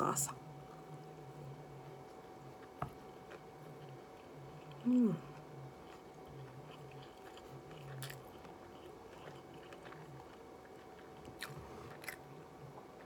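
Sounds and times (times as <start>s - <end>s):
chewing crispy food: 0.6s - 13.0s.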